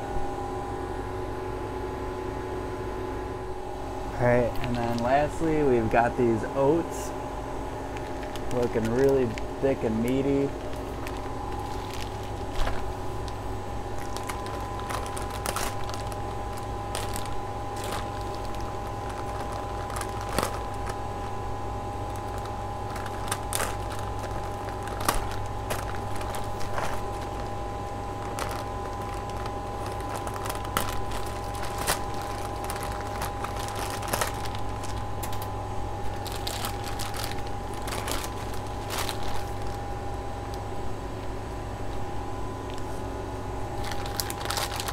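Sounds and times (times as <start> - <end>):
steady machine hum: 0.0 - 44.9
plastic bag crinkling: 4.5 - 6.8, 7.9 - 40.7, 43.7 - 44.9
crackling clicks: 7.9 - 21.4, 22.1 - 27.5, 28.2 - 35.5, 36.1 - 39.8.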